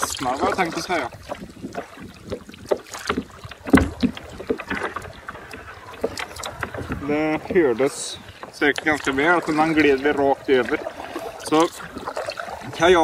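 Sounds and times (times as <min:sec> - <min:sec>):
kayak hull knock: 0:00.0 - 0:07.7
kayak hull scraping over reeds: 0:00.0 - 0:13.0.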